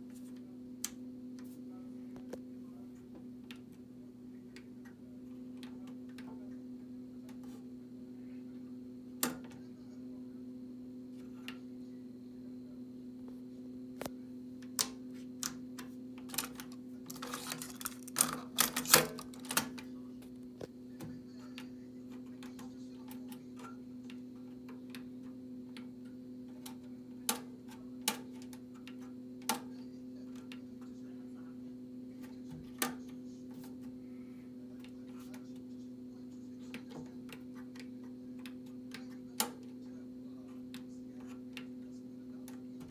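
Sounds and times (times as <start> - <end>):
cassette deck mechanism clicking: 16.3 - 19.8.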